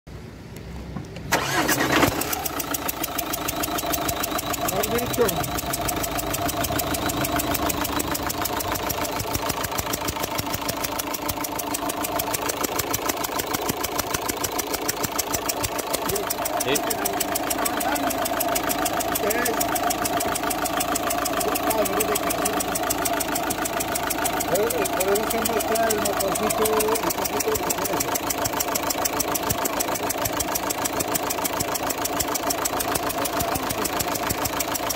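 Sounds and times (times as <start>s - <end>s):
diesel engine idling with ticking: 1.2s - 34.9s.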